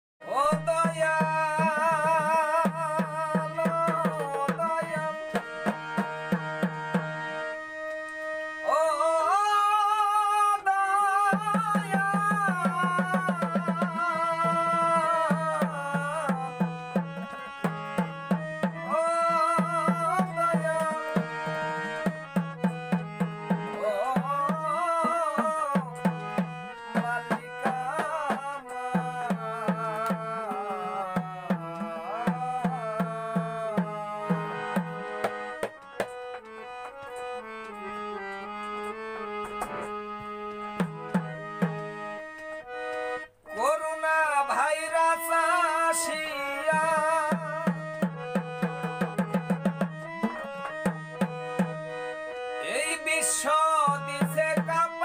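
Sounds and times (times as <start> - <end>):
man singing: 0.2 - 5.8, 8.6 - 22.8, 23.5 - 35.0, 43.5 - 50.6, 52.6 - 55.0
harmonium chords: 0.2 - 55.0
hand drum beating: 11.4 - 19.0, 46.8 - 51.8.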